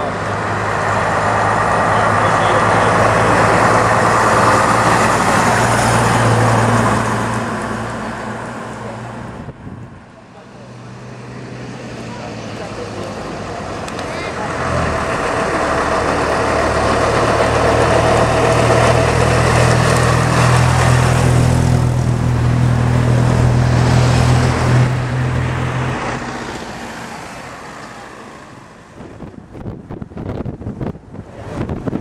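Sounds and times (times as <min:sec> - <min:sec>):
bus engine passing: 0:00.0 - 0:32.0
wind buffeting microphone: 0:09.3 - 0:10.0, 0:28.9 - 0:32.0.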